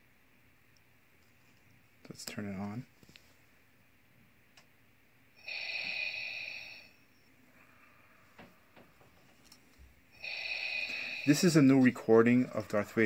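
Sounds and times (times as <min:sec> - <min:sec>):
hissing respirator breath: 0:05.4 - 0:08.9, 0:10.1 - 0:11.8.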